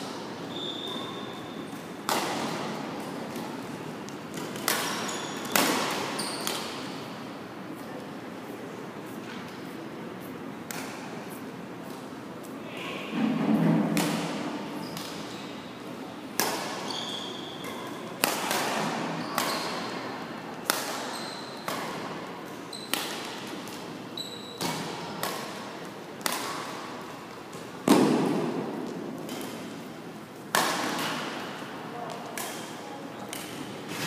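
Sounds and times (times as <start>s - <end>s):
rackets striking shuttlecock: 2.0s - 6.9s, 17.6s - 19.9s, 20.6s - 23.8s, 24.6s - 26.9s, 27.5s - 31.5s.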